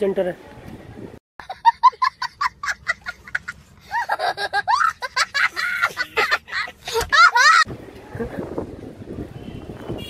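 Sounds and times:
young child laughing: 1.4s - 8.4s.

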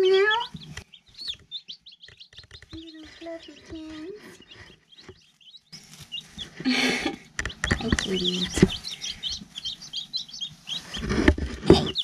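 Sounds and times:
chicks peeping: 0.0s - 12.0s.

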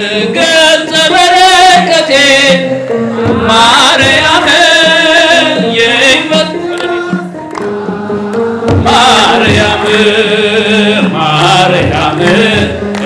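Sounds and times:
crowd singing a hymn: 0.0s - 13.0s
drum beat: 1.2s - 13.0s
hand clapping: 6.3s - 8.8s, 12.1s - 13.0s.

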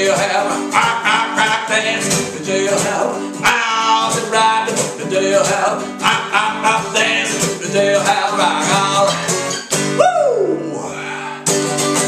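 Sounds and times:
acoustic guitar strumming: 0.0s - 12.0s
person singing a long wail: 10.0s - 11.5s.

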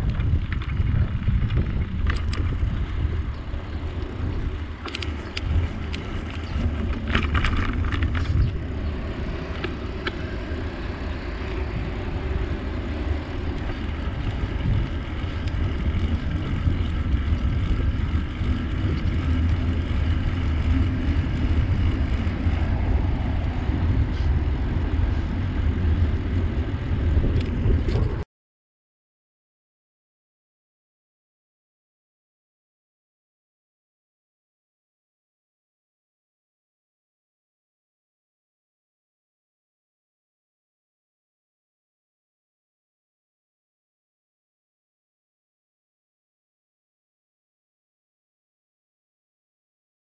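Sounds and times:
rolling bicycle tyres: 0.0s - 28.2s
wind rumbling on microphone: 0.0s - 28.3s.

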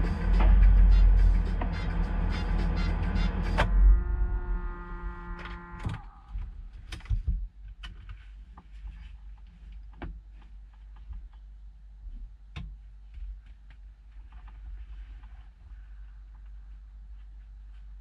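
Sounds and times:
held musical chord: 0.0s - 5.8s
low steady rumble: 0.0s - 18.0s.

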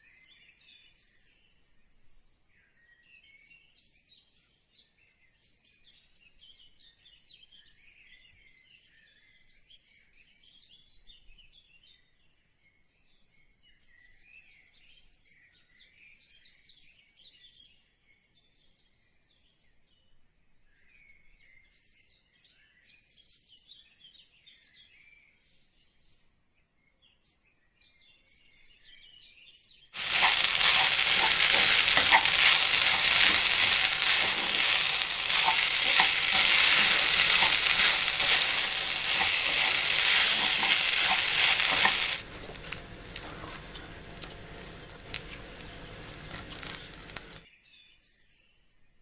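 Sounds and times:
small birds chirping: 30.0s - 47.4s.

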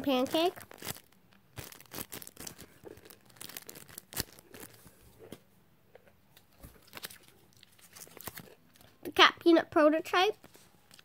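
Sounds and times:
plastic packaging crinkling: 0.0s - 5.0s, 6.7s - 8.8s, 10.4s - 11.0s.

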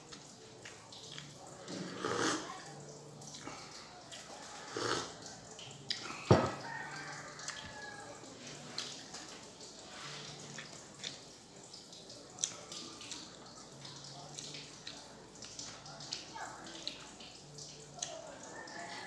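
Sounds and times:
wet chewing mouth clicks: 0.1s - 2.4s, 3.3s - 6.3s, 10.4s - 11.2s, 12.3s - 13.4s
mug knocking on table: 6.3s - 6.6s.

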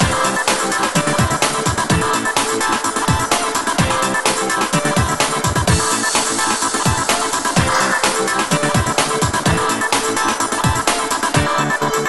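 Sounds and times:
electronic dance music: 7.7s - 9.4s.

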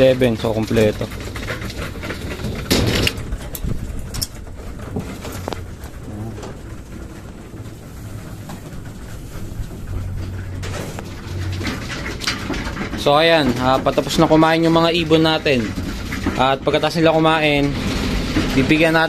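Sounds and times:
pigeons cooing: 0.0s - 14.3s.

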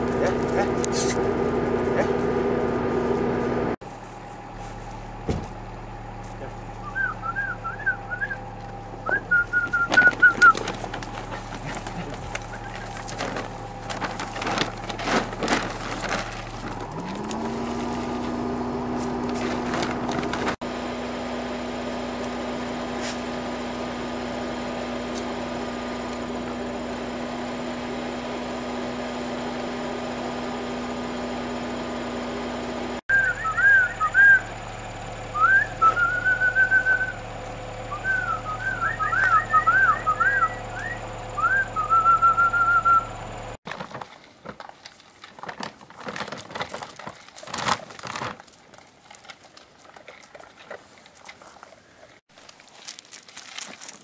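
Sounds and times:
low hum rising in pitch: 0.0s - 43.6s
person whistling: 6.8s - 8.4s, 9.0s - 10.7s, 33.1s - 34.5s, 35.3s - 37.2s, 37.9s - 43.2s
dry dog food poured into bowl: 52.4s - 54.0s.

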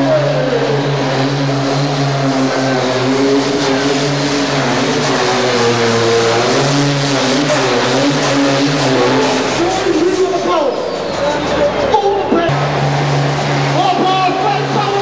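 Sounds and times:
tractor engine running under load: 0.1s - 10.0s.

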